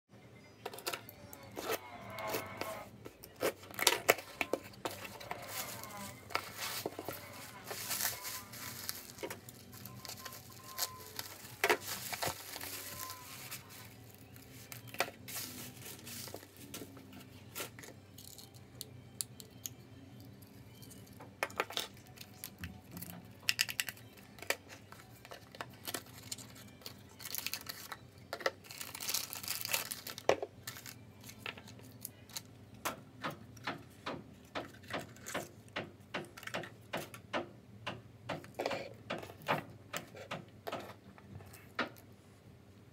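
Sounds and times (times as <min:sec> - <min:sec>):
packing tape tearing: 0:01.4 - 0:16.8, 0:21.7 - 0:32.5
plastic wrapping crinkling: 0:02.2 - 0:16.9, 0:21.7 - 0:32.4.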